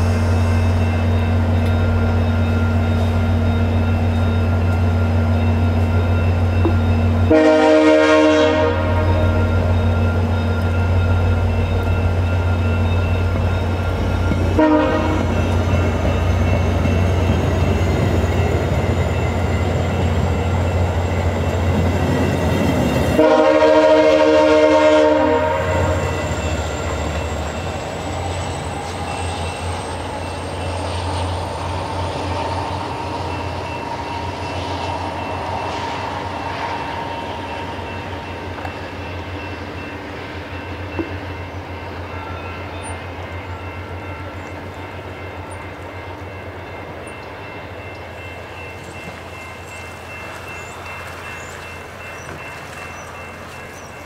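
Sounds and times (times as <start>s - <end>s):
diesel locomotive engine drone: 0.0s - 54.0s
train coaches rumbling: 0.0s - 54.0s
locomotive horn: 7.1s - 9.8s, 14.5s - 15.6s, 23.1s - 26.4s.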